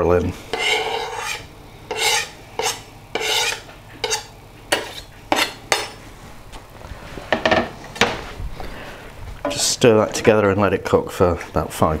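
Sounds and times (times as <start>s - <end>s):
knife scraping chopping board: 0.5s - 6.0s.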